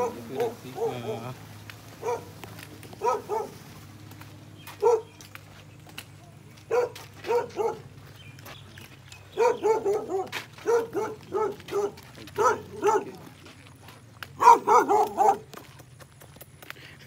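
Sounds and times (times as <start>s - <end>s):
dog barking: 0.0s - 1.4s, 2.0s - 2.4s, 3.0s - 3.6s, 4.8s - 5.2s, 6.7s - 7.9s, 9.3s - 13.3s, 14.4s - 15.5s.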